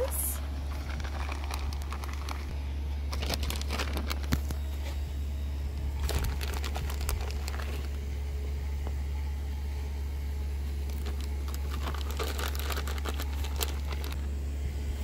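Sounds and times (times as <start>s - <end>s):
low hum: 0.0s - 15.0s
food packaging crinkling: 0.7s - 2.5s, 3.1s - 4.6s, 6.0s - 8.0s, 10.8s - 14.2s.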